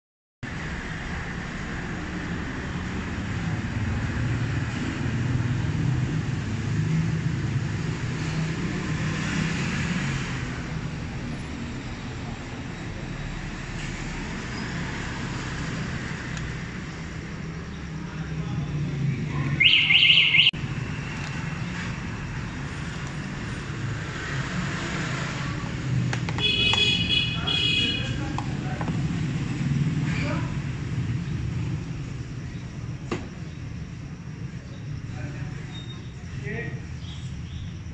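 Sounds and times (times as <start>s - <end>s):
high-pitched electronic beep: 19.6s - 20.6s.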